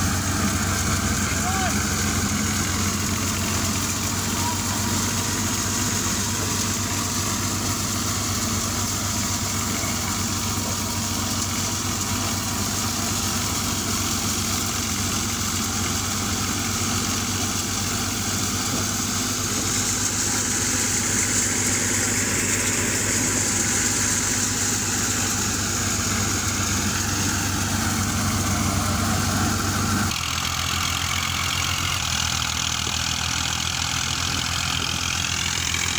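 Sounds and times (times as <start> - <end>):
threshing machine whirring: 0.0 - 35.9
tractor diesel engine running: 0.0 - 35.9.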